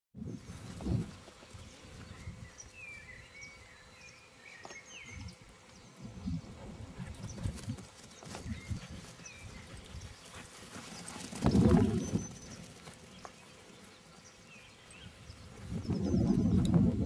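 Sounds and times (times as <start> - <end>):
wind buffeting microphone: 5.1 - 10.4, 11.1 - 12.6, 15.0 - 17.0.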